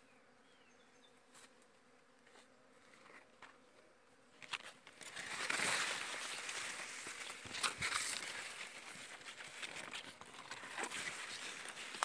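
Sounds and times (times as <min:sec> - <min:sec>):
faint insect buzzing: 0:00.0 - 0:12.0
leaves rustling against microphone: 0:04.3 - 0:12.0.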